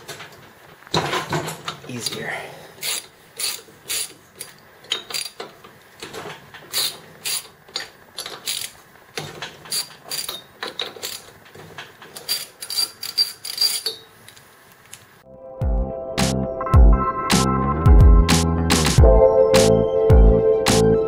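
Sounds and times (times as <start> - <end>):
ratchet wrench clicking: 2.8 - 5.4, 6.7 - 8.8, 9.7 - 11.3, 12.2 - 14.1.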